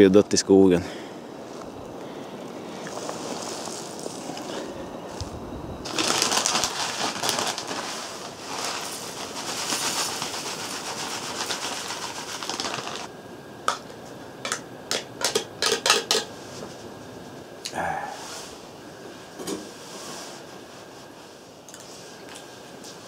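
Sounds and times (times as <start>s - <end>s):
plastic bag rustling: 2.6s - 13.1s.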